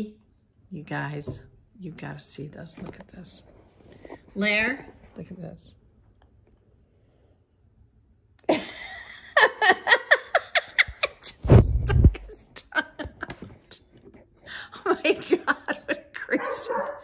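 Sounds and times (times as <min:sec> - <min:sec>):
woman laughing: 0:08.4 - 0:13.8, 0:14.5 - 0:17.0.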